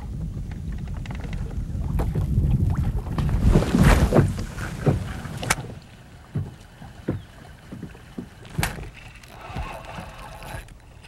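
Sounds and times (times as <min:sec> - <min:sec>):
water lapping against boat hull: 0:00.0 - 0:11.0
irregular knocks: 0:04.2 - 0:10.2.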